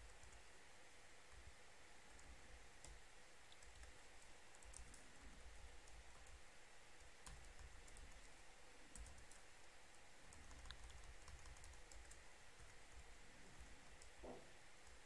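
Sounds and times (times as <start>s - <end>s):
computer keyboard keystrokes: 2.2s - 5.0s, 7.2s - 8.3s, 8.9s - 9.4s, 10.3s - 12.8s.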